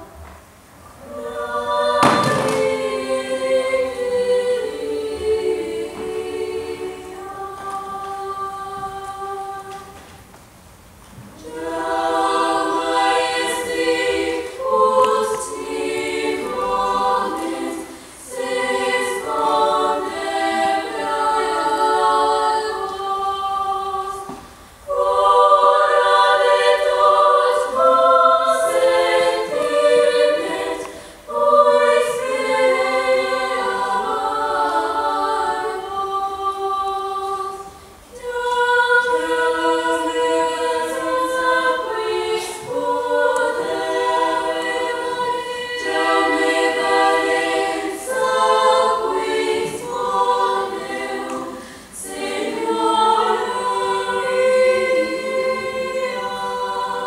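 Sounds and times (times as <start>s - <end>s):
youth choir singing: 0.0s - 0.2s, 0.9s - 10.2s, 11.2s - 57.0s.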